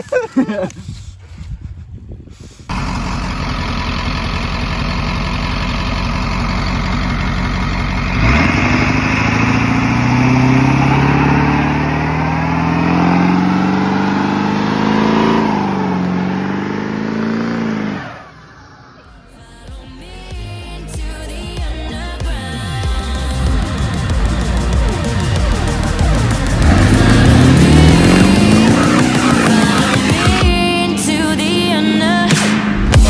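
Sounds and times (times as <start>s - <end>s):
diesel truck engine revving: 2.7s - 19.3s, 21.2s - 33.0s
tyres spinning: 24.2s - 30.6s.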